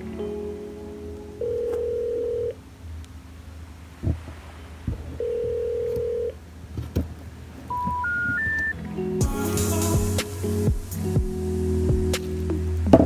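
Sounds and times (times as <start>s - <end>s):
electronic beep tones: 7.7s - 8.8s.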